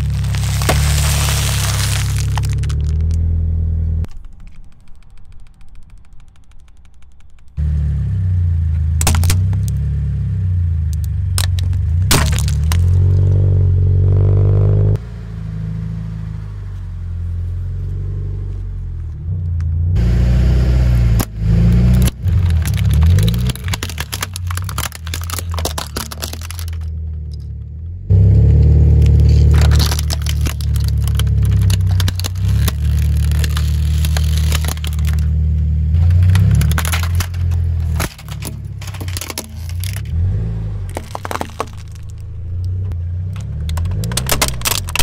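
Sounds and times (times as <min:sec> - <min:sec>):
plastic toys cracking and crunching: 0:00.0 - 0:03.3, 0:04.0 - 0:07.6, 0:08.9 - 0:09.8, 0:10.8 - 0:13.4, 0:21.2 - 0:27.5, 0:28.9 - 0:40.2, 0:40.8 - 0:45.0
car engine rumbling low: 0:00.0 - 0:45.0.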